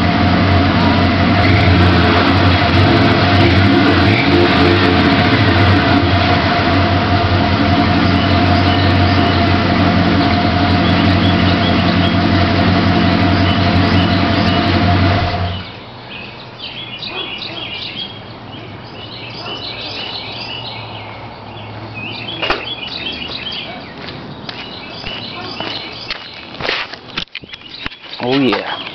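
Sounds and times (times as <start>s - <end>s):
engine idling: 0.0s - 15.8s
truck exhaust running loud: 0.0s - 15.8s
birds chirping: 0.9s - 28.9s.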